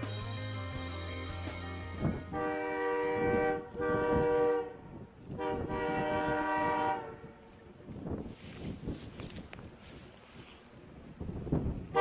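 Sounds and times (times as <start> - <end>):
train rumbling: 0.0 - 12.0
locomotive air horn blasts: 2.0 - 7.7.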